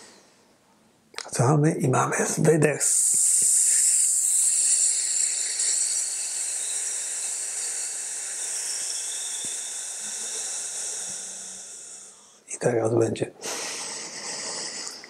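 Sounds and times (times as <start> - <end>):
man's hissed exhalation: 3.0 - 12.4.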